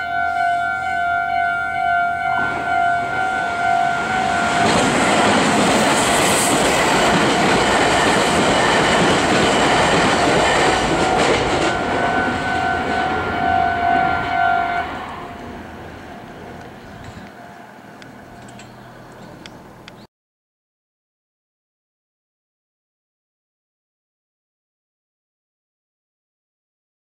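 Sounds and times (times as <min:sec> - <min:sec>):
electric train passing: 0:00.0 - 0:20.1
wheels clacking over rail joints: 0:04.1 - 0:13.4.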